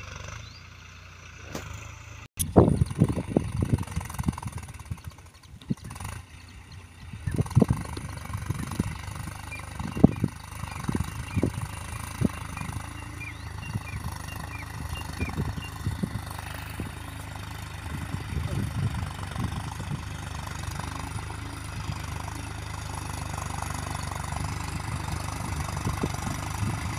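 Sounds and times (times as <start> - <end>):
tractor engine running: 0.0 - 26.9
low rumbling thumps: 13.6 - 20.4.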